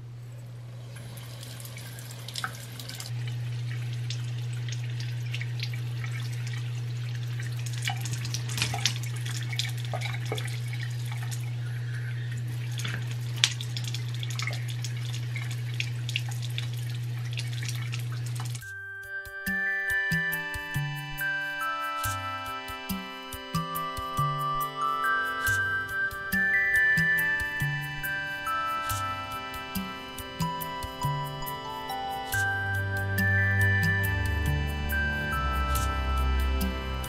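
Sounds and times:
steady low hum: 0.0s - 18.8s, 19.5s - 37.0s
water running into sink: 0.7s - 11.7s, 12.4s - 18.6s.

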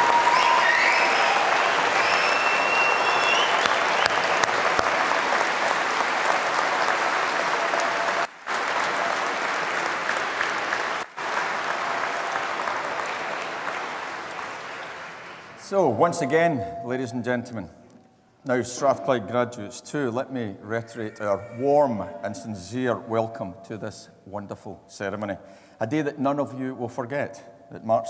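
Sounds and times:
audience applauding: 0.0s - 15.6s.

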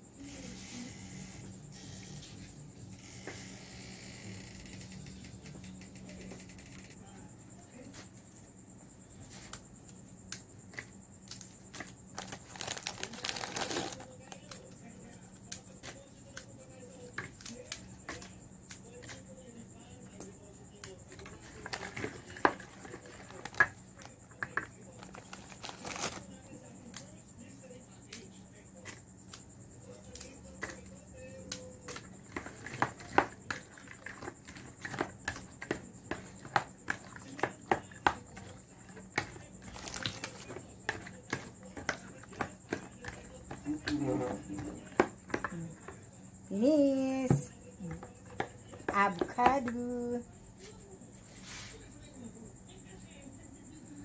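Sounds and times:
plastic wrapper crinkling: 12.1s - 14.5s, 25.0s - 26.3s, 39.6s - 40.4s
fork scraping plastic bowl: 21.1s - 23.8s, 31.9s - 46.0s.

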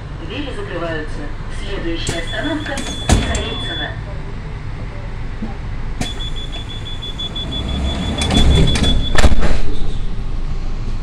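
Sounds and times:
train low hum: 0.0s - 11.0s
sliding doors clicking and thudding shut: 2.1s - 3.6s, 6.0s - 9.8s
rapid high warning beeps: 2.1s - 4.0s, 6.0s - 9.2s.

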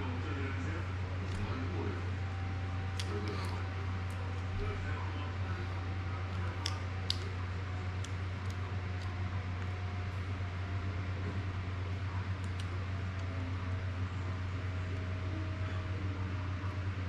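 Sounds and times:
low room hum: 0.0s - 17.0s
light plastic clicks: 6.3s - 9.8s, 12.4s - 13.3s.

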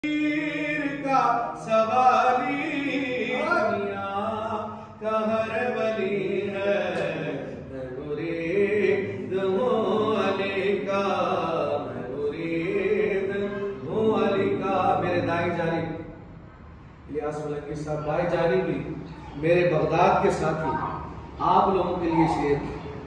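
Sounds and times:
man chanting devotional song: 0.0s - 16.2s, 17.0s - 20.7s, 21.3s - 22.8s.

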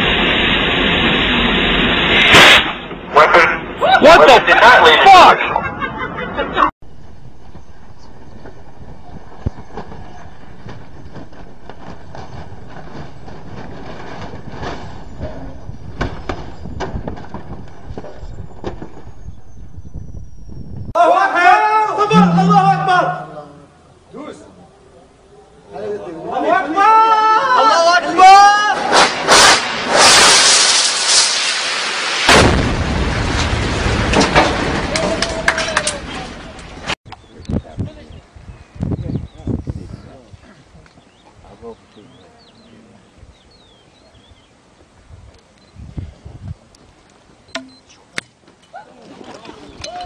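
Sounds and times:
explosion blasts: 22.1s - 23.8s, 32.2s - 34.9s
loud bangs: 22.1s - 23.8s
high whine falling in pitch: 22.1s - 24.0s
deep explosion rumble: 32.3s - 34.9s.

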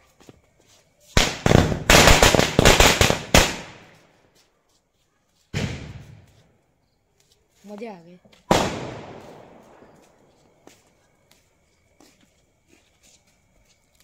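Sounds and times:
firecracker crackling bangs: 1.2s - 4.0s, 5.5s - 6.3s, 8.5s - 10.0s.

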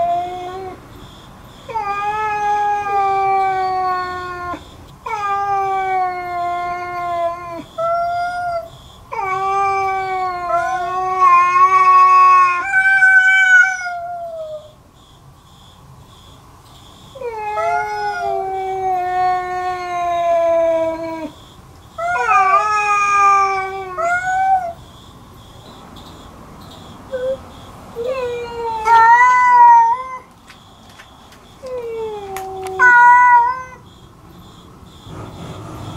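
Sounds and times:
cats yowling: 0.0s - 0.8s, 1.7s - 14.8s, 17.2s - 21.4s, 22.0s - 24.8s, 27.1s - 27.4s, 28.0s - 30.4s, 31.6s - 33.9s.

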